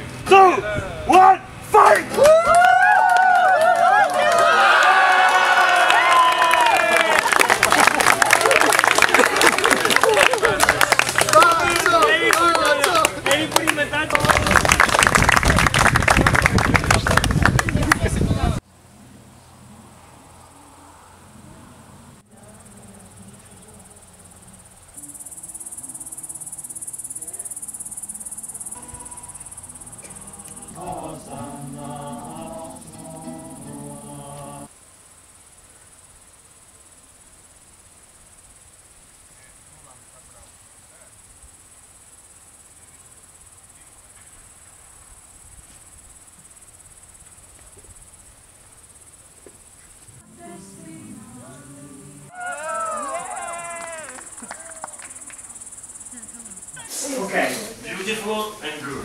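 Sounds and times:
crickets chirping: 3.3 - 59.0
night insects trilling: 18.8 - 59.0.

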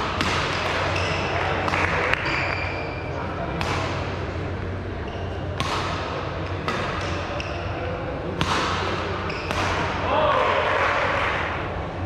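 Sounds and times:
racket hitting shuttlecock: 0.0 - 2.6, 3.5 - 4.1, 5.6 - 7.6, 8.3 - 10.0.

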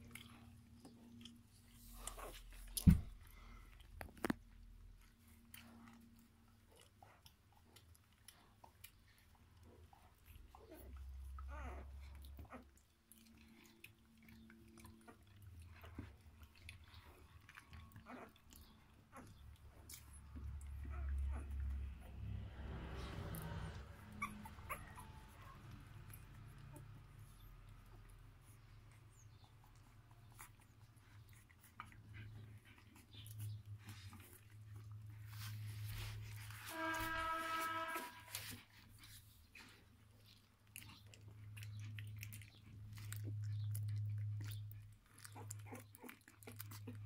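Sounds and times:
small clicks and smacks: 0.0 - 10.7
puppies chewing wetly: 0.0 - 36.4, 38.4 - 47.0.

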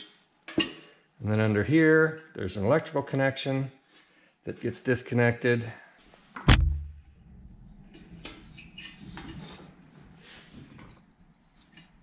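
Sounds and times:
sharp knock: 6.5 - 7.1.

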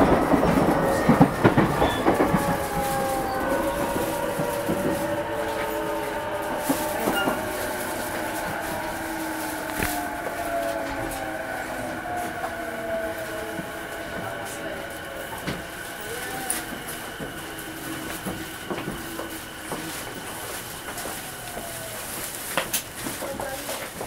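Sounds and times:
traction motors whining: 0.0 - 23.2
train wheels clacking over rail joints: 0.0 - 24.0.

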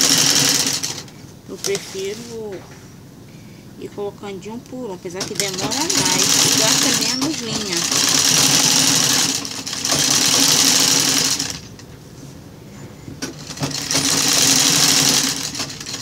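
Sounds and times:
sewing machine stitching: 0.0 - 2.3, 5.2 - 11.8, 13.2 - 16.0.

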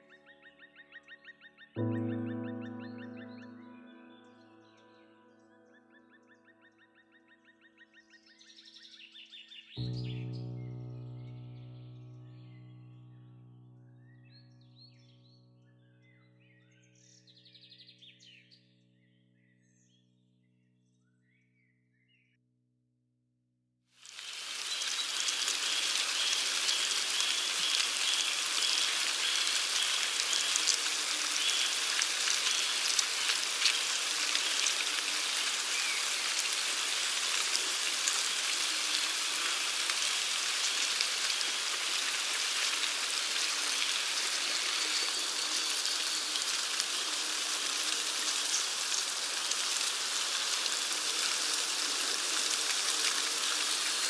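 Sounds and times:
ants crackling rustle: 24.1 - 54.0.

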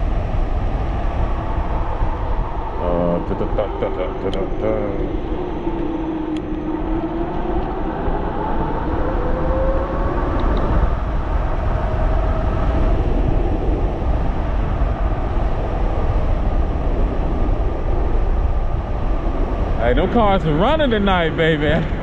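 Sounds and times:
wind rumble on microphone: 0.0 - 22.0
electric motor whine rising: 4.4 - 11.4.

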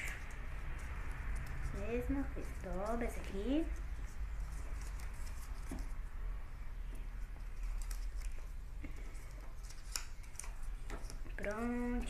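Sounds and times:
paper rustling: 4.0 - 6.0, 7.4 - 12.0.

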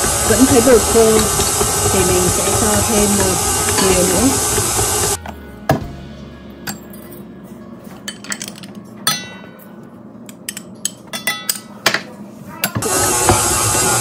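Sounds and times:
stand mixer motor hum: 0.0 - 5.2, 12.8 - 14.0
utensils clinking on steel bowl: 0.3 - 4.4, 8.0 - 9.6, 10.3 - 12.8.

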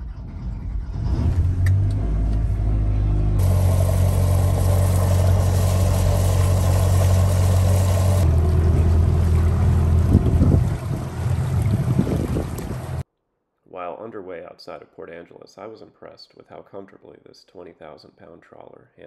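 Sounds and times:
marine engine running: 2.9 - 13.0.

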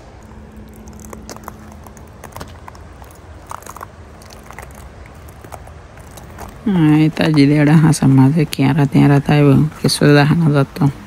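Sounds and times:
steady low rush: 0.0 - 11.0
footsteps crunching on frozen snow: 0.1 - 8.6.

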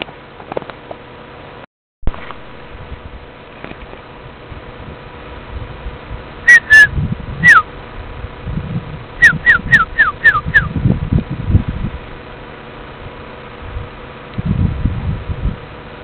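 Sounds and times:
wind or handling bumps: 0.0 - 1.2, 2.1 - 16.0
person whistling falling notes: 6.5 - 7.6, 9.2 - 10.7.

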